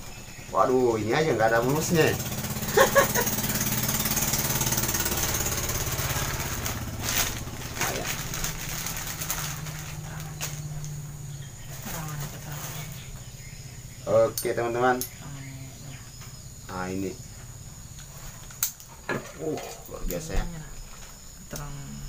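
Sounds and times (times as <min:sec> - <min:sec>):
steady low hum: 0:00.0 - 0:22.0
plastic bag crinkling: 0:04.6 - 0:13.1.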